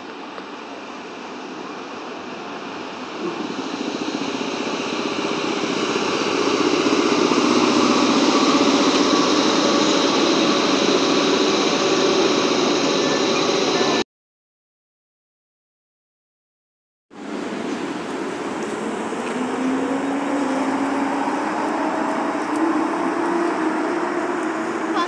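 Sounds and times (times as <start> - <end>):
electric locomotive running: 0.0 - 14.0, 17.2 - 25.0
train carriages rolling past: 0.0 - 14.0, 17.2 - 25.0.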